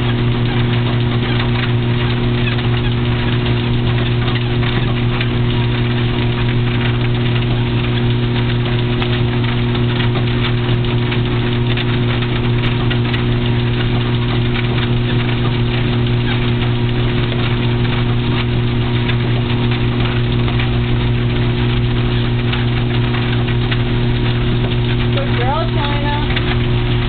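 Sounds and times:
treadmill motor humming: 0.0s - 27.0s.

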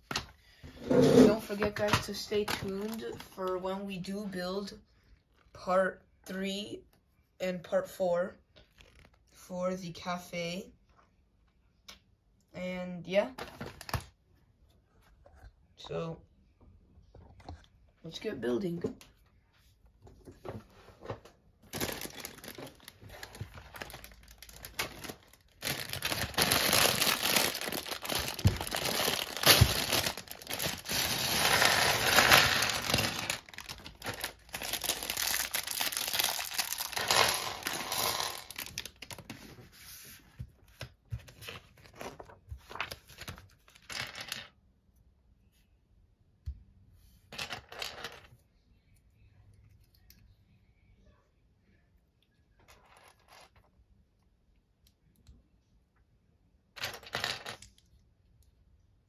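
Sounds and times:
plastic bags rustling: 21.6s - 39.3s.

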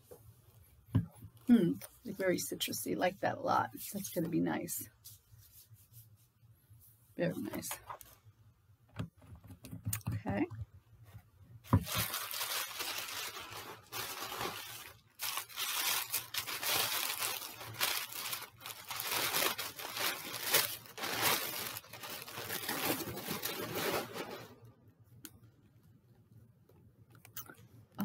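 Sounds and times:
tissue paper crinkling: 11.7s - 24.6s.

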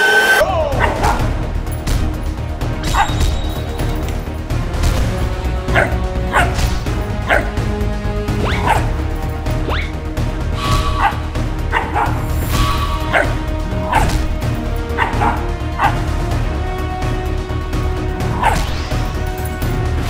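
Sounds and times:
background music with beat: 0.1s - 20.0s
puppies barking and yipping: 2.8s - 4.1s, 5.6s - 7.6s, 8.4s - 10.0s, 10.7s - 16.1s.

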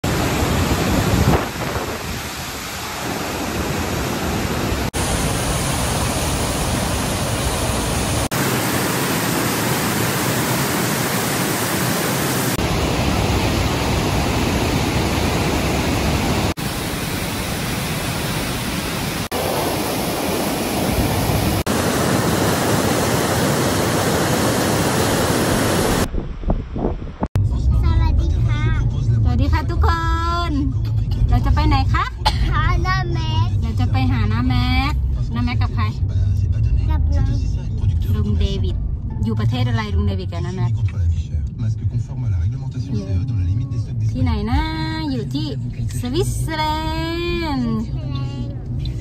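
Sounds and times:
waterfall roaring: 0.0s - 26.1s.

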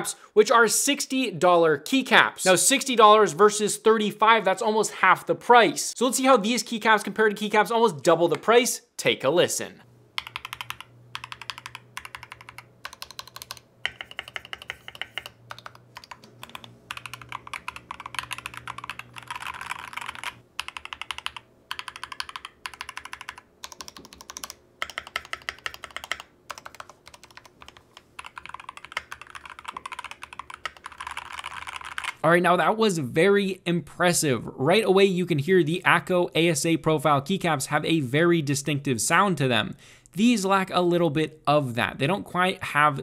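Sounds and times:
mechanical keyboard keystrokes clacking: 10.2s - 32.2s.

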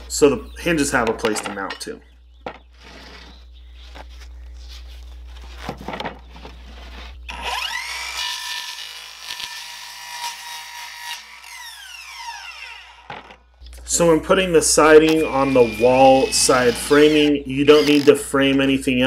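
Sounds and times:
knocks of handling: 1.0s - 4.3s, 5.4s - 7.0s
circular saw cutting wood: 7.3s - 13.3s, 14.0s - 18.5s.

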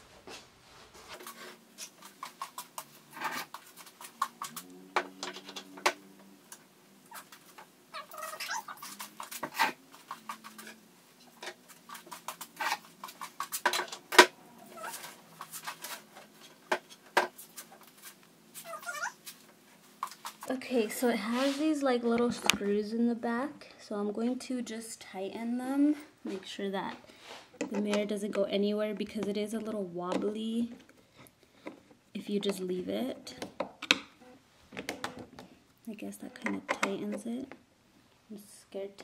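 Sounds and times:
faint steady hum: 0.0s - 39.0s
short squeal-like cries: 8.0s - 9.0s, 14.6s - 15.2s, 18.6s - 19.2s
handling clicks taps and knocks: 33.4s - 34.1s.

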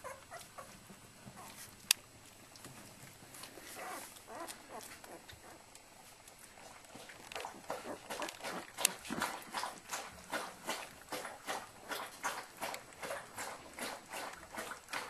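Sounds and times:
puppies squeaking and whimpering: 0.0s - 0.8s, 3.6s - 5.6s.

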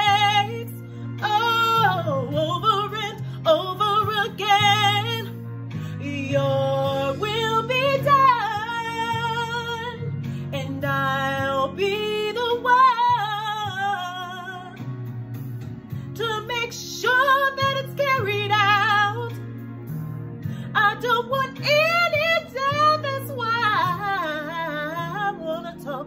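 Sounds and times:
woman singing gospel: 0.0s - 14.8s, 16.2s - 19.5s, 20.6s - 26.0s
instrumental backing: 0.0s - 26.0s.

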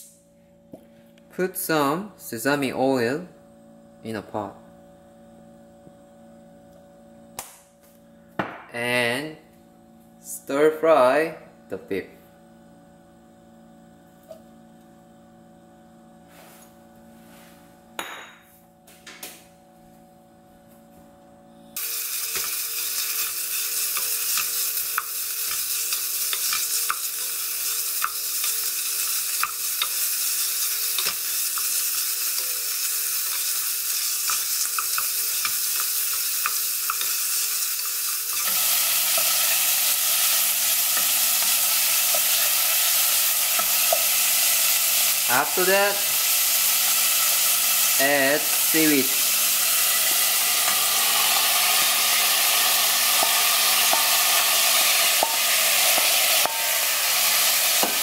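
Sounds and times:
meat sizzling in a pot: 21.8s - 58.0s.

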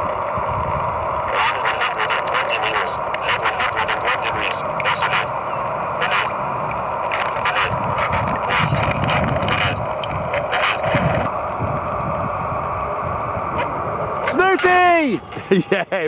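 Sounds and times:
synthesized voice over radio: 1.2s - 11.3s, 12.9s - 15.3s.

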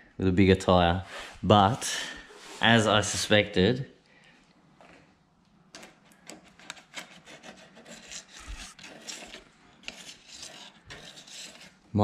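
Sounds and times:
plastic card scraping tyre: 5.8s - 11.9s.

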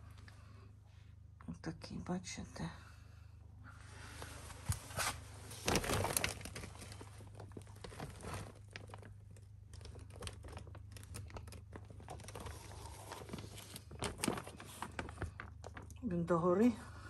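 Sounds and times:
plastic bag crinkling: 5.0s - 16.1s.

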